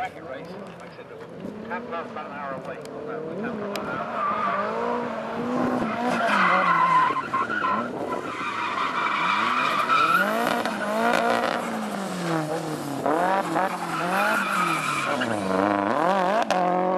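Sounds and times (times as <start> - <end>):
car engine revving: 0.3 - 16.9
tyres squealing: 5.8 - 11.5, 13.6 - 15.6.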